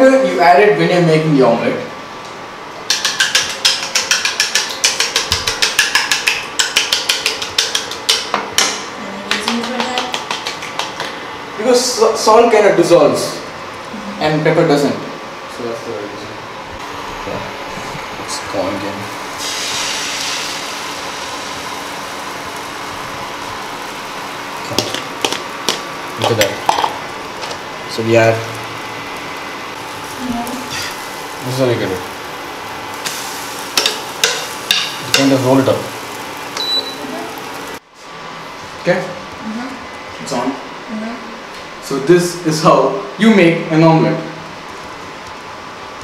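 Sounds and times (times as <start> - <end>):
egg sizzling on hot pan: 2.8 - 8.9, 16.8 - 37.8.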